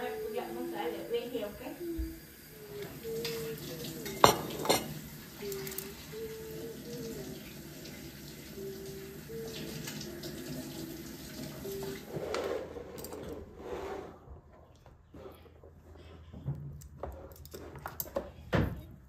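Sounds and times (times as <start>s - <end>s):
kitchen tap running: 0.0s - 12.1s.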